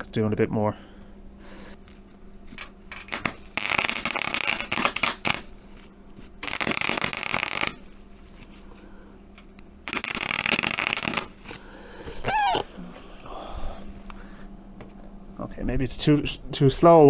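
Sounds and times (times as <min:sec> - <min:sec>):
welder arc crackling: 0:02.9 - 0:08.5, 0:09.4 - 0:11.6
welder spits: 0:03.1 - 0:05.5, 0:06.4 - 0:07.8, 0:09.9 - 0:11.5.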